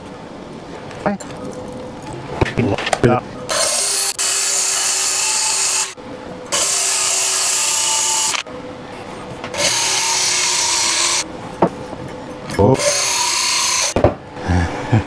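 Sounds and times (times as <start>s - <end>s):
drill grinding metal blade: 3.5s - 8.4s, 9.6s - 11.2s, 12.6s - 14.0s
drill motor whining: 3.5s - 8.4s, 9.5s - 11.2s, 12.8s - 14.0s.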